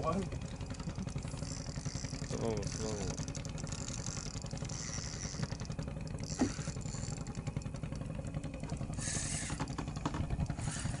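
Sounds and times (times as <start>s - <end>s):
boat engine running: 0.0s - 11.0s.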